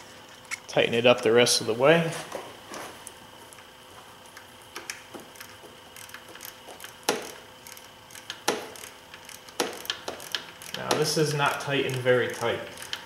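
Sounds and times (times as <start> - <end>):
hand ratchet clicking: 4.4 - 13.0.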